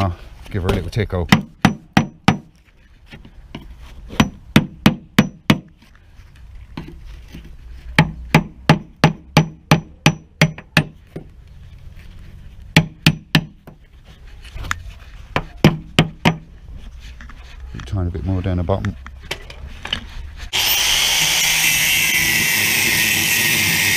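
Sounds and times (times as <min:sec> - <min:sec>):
hammer striking a chisel on steel: 0:01.3 - 0:02.5, 0:04.2 - 0:05.7, 0:08.0 - 0:11.0, 0:12.8 - 0:13.6.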